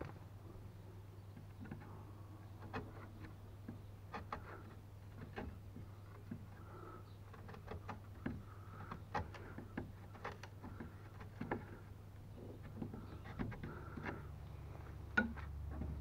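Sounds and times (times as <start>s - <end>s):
chisel paring wood: 2.6s - 14.4s, 15.1s - 16.0s.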